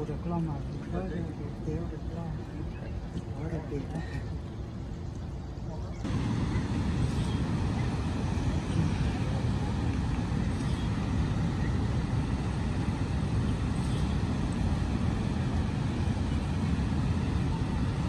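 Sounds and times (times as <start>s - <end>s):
floodwater rushing: 6.1s - 18.0s.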